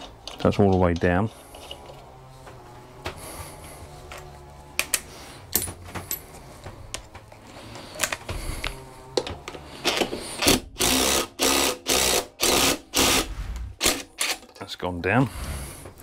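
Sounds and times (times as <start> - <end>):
impact driver bursts: 9.8 - 14.4.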